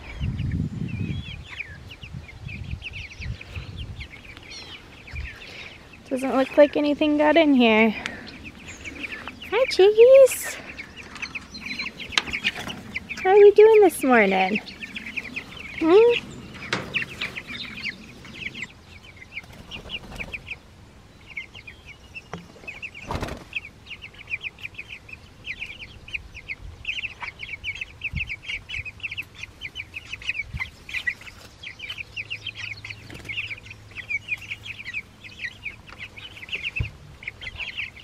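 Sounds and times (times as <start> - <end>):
chicks peeping: 0.0 - 38.0.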